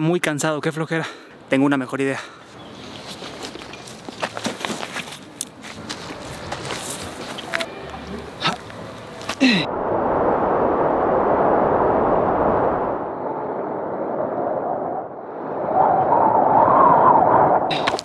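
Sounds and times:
rushing rumbling wind: 8.7s - 18.0s.

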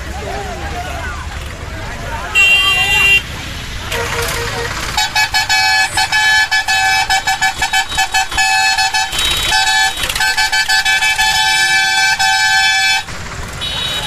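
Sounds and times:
vehicle horn honking: 2.3s - 3.3s, 3.9s - 14.0s.

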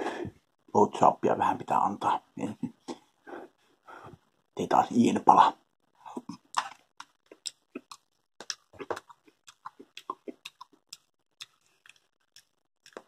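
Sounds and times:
person chewing: 6.1s - 13.0s.

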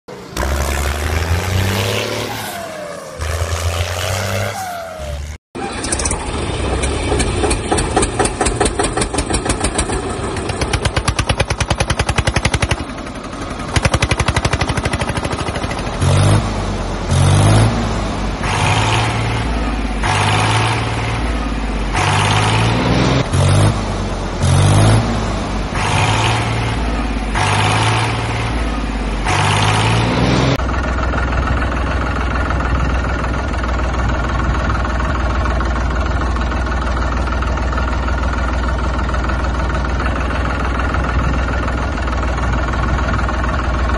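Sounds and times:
diesel tractor engine running: 5.0s - 43.9s
small tractor engine chugging: 5.6s - 16.0s, 30.6s - 43.9s.

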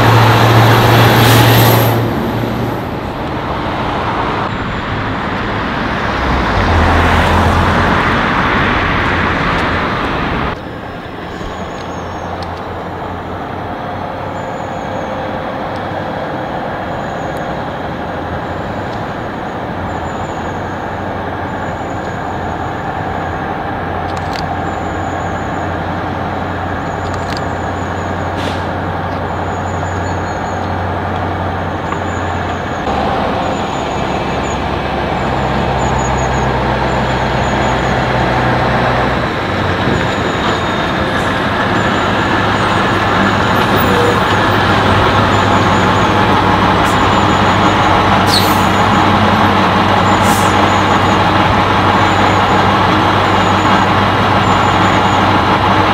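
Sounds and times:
passing traffic: 0.0s - 55.9s
road noise: 0.0s - 55.9s
truck diesel engine running: 0.0s - 55.9s
sharp clicks: 24.0s - 24.5s.

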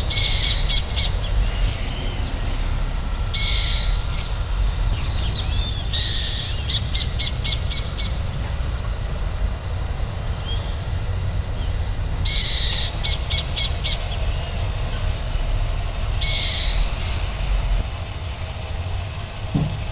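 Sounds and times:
owl screeching: 0.0s - 2.2s, 3.3s - 4.4s, 5.0s - 8.2s, 12.2s - 14.4s, 16.2s - 17.4s
steady low rumble: 0.0s - 19.9s.

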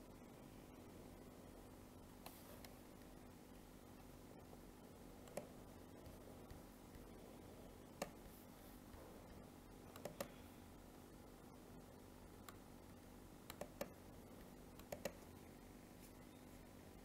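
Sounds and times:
faint steady hum: 0.0s - 17.0s
computer mouse clicking: 5.2s - 7.1s, 7.9s - 8.3s, 9.9s - 10.4s, 12.4s - 12.6s, 13.5s - 15.3s.

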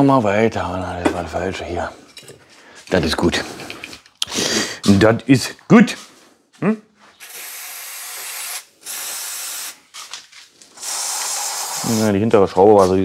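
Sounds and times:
aerosol can hissing: 7.2s - 9.8s, 10.8s - 12.2s.

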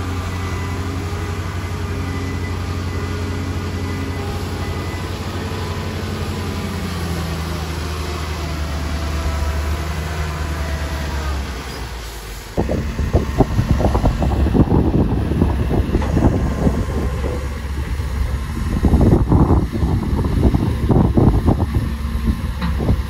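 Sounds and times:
diesel engine running: 0.0s - 23.0s
rough rumble with crackling: 12.6s - 23.0s.

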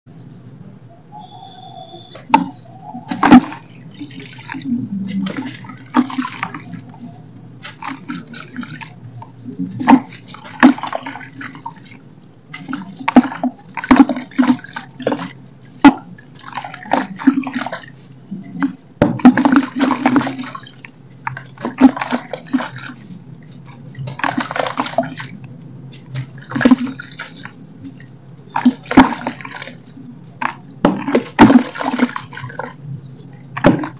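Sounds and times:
grit splashing into water: 23.9s - 25.4s, 26.0s - 29.8s, 30.4s - 32.8s.

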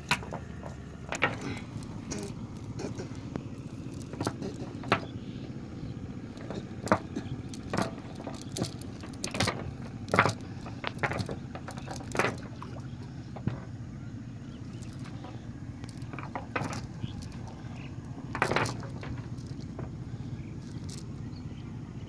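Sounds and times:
steady low hum: 0.0s - 22.0s
fishing net knocking on wooden boat: 6.4s - 13.8s.

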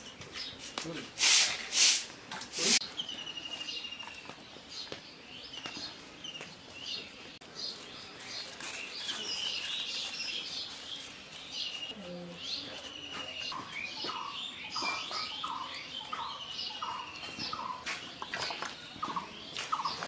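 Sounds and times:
small birds chirping: 0.0s - 1.6s, 2.4s - 20.0s
bird trill: 11.6s - 20.0s.

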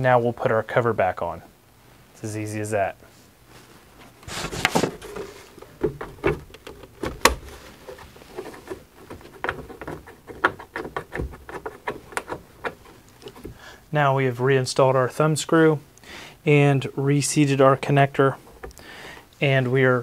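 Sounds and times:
clicks and knocks of plastic cover: 4.3s - 13.6s.

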